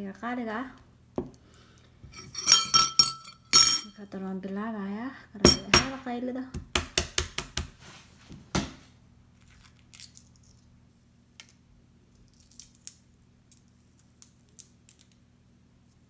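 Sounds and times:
low steady hum: 0:00.0 - 0:06.8
metal spoon knocking glass bowl: 0:02.2 - 0:03.9, 0:05.5 - 0:06.0
stirring strikes: 0:02.2 - 0:03.9, 0:05.5 - 0:06.0.

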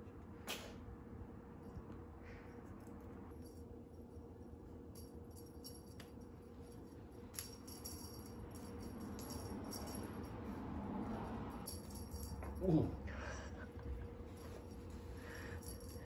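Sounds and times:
cat toy jingling and rattling: 0:04.9 - 0:12.8, 0:14.2 - 0:16.0.

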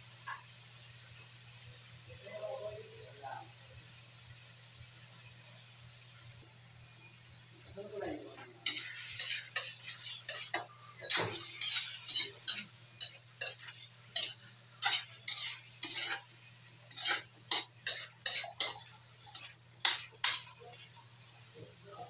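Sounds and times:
metal spatula scraping a wok: 0:08.6 - 0:21.0.

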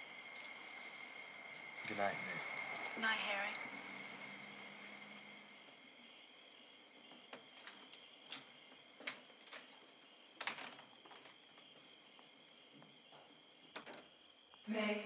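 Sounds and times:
crickets trilling: 0:00.0 - 0:15.0
screen door clicks and knocks: 0:10.3 - 0:11.3, 0:13.7 - 0:14.1.

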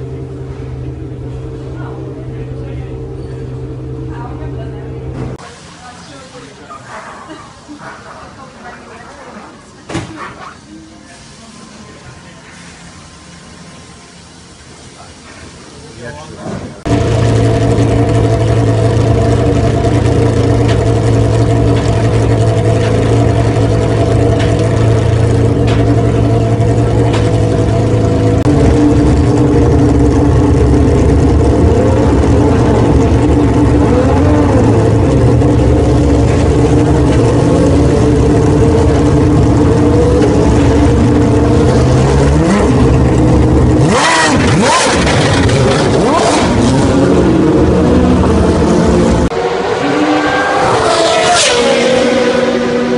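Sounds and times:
race car engine idling: 0:00.0 - 0:06.3, 0:16.6 - 0:49.4
engine revving as car pulls away: 0:16.9 - 0:52.9.

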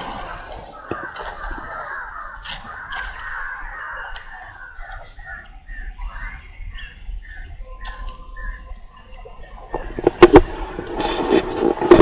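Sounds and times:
crows cawing: 0:00.0 - 0:07.0.

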